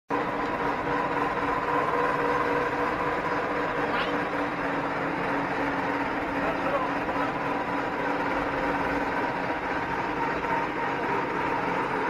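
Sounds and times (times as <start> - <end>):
crowd chatter: 6.3 - 9.0.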